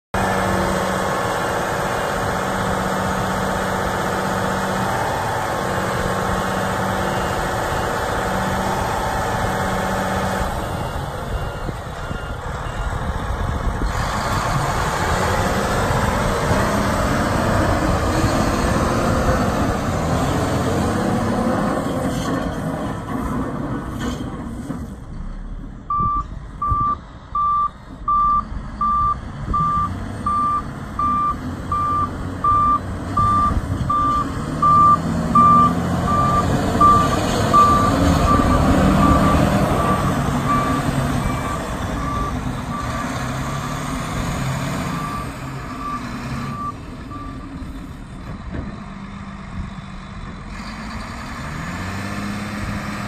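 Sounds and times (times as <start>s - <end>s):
diesel engine running: 0.1s - 53.0s
reversing alarm beeping: 6.4s - 13.5s, 25.9s - 43.2s, 44.9s - 47.5s.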